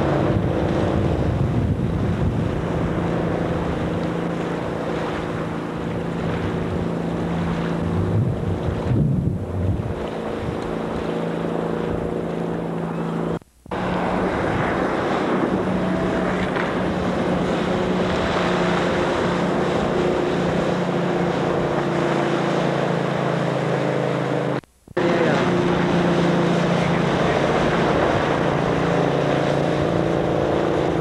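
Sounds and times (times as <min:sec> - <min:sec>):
wind on microphone: 0:00.0 - 0:12.4, 0:13.7 - 0:21.9
motorboat engine running: 0:00.0 - 0:31.0
water rushing: 0:00.0 - 0:31.0.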